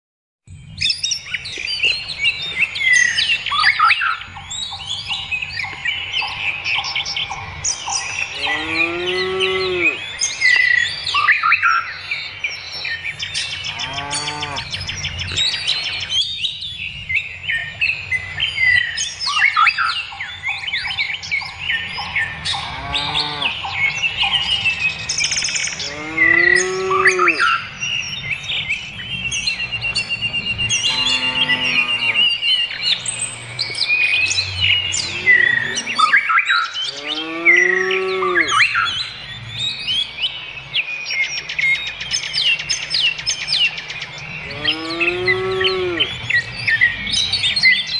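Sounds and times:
songbirds chirping and singing: 0.5 - 47.9
cattle mooing: 8.3 - 10.0, 13.7 - 14.7, 22.5 - 23.6, 25.8 - 27.5, 30.7 - 32.4, 35.0 - 36.2, 36.8 - 38.6, 44.5 - 46.1.

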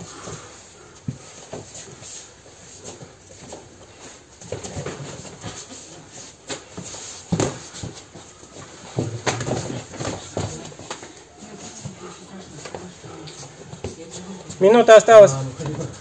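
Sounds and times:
feet scuffing on mats: 0.0 - 14.8
gloved punches and kicks landing: 7.3 - 7.7, 9.0 - 11.0.

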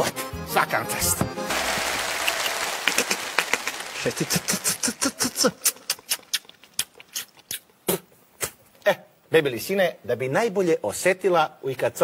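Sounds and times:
mouth clicks and smacks: 2.2 - 8.8
breathy mouth noise: 4.5 - 8.7.

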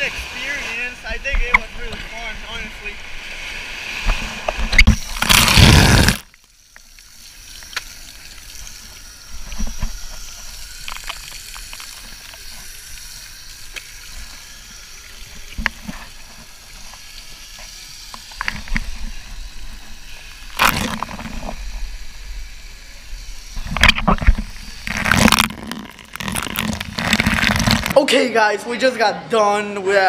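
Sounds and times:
loud rushing water burst: 0.0 - 6.3.

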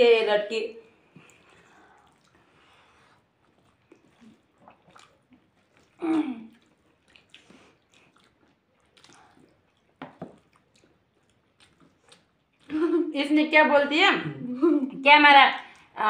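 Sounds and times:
chewing: 0.8 - 12.9.

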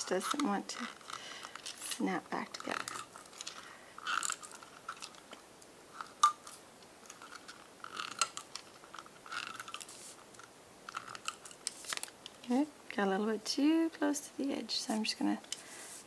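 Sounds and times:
mechanism clicking and rattling: 6.0 - 12.4.

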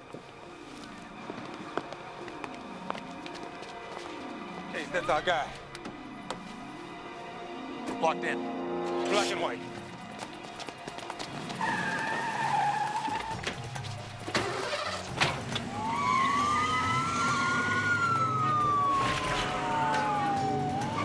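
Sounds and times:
police siren wailing: 15.6 - 21.0.

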